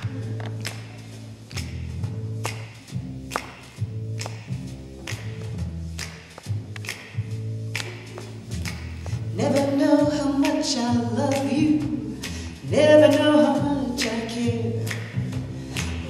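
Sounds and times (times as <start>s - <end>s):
steady low accompaniment: 0.0s - 16.0s
woman singing into a microphone: 9.3s - 15.0s.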